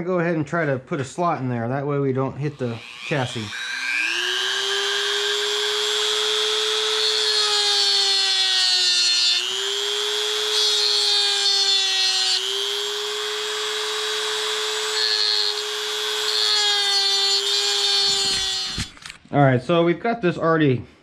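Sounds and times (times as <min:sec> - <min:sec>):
rotary tool grinding metal screw: 0:02.6 - 0:19.2.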